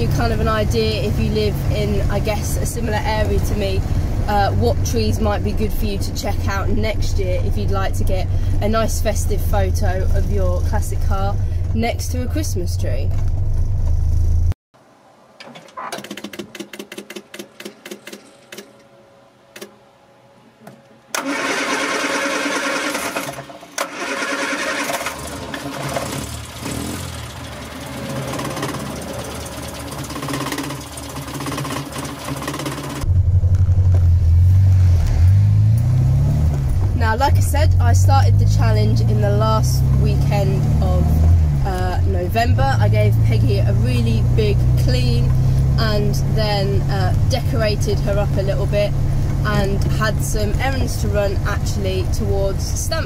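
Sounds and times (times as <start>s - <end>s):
car engine droning in cabin: 0.0s - 14.6s, 25.0s - 53.0s
engine starting and running loudly: 21.1s - 53.0s
rapid uneven clicking: 27.3s - 33.1s.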